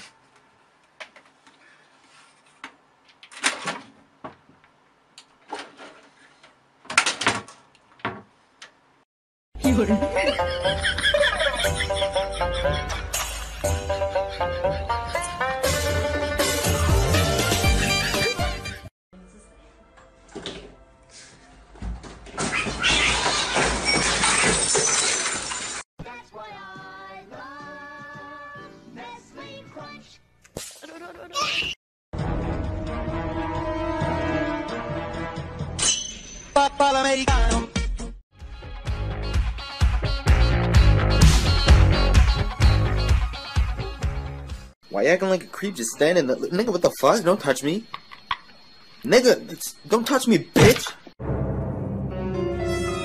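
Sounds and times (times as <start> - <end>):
music with sung melody: 36.6 - 44.6.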